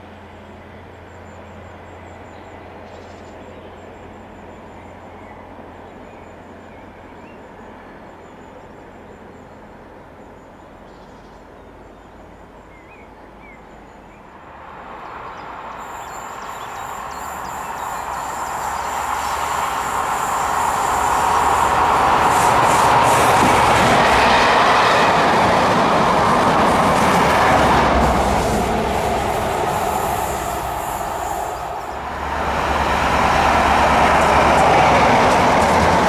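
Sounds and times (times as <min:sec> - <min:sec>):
diesel train approaching: 0:00.0 - 0:36.0
train wheels on rails: 0:14.0 - 0:36.0.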